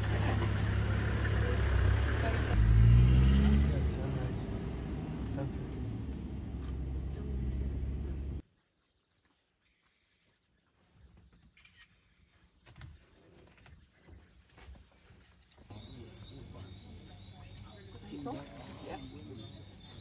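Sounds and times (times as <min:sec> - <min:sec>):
vehicle engine rumbling: 0:00.0 - 0:08.4, 0:15.7 - 0:20.0.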